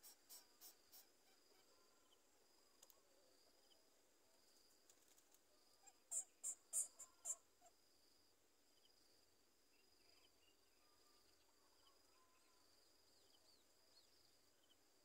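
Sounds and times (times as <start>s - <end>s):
bird chirps: 5.8s - 7.4s.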